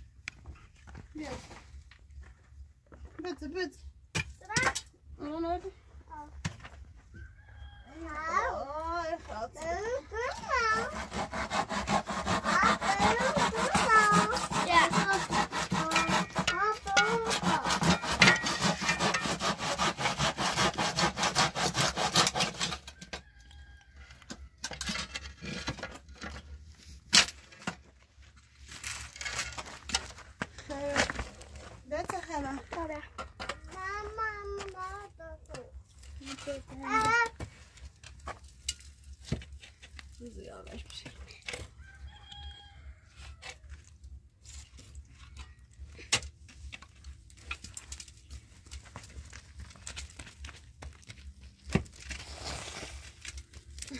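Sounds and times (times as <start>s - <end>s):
wooden poles creaking and knocking: 6.2s - 53.9s
hand saw cutting wood: 10.2s - 23.0s
small wood cracks: 46.7s - 52.2s.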